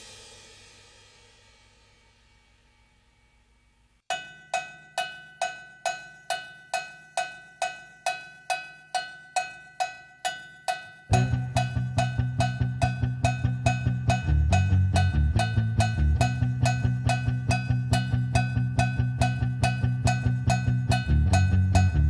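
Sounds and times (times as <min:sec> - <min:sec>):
ringing percussion beat: 0:04.1 - 0:22.0
bass line: 0:11.1 - 0:22.0.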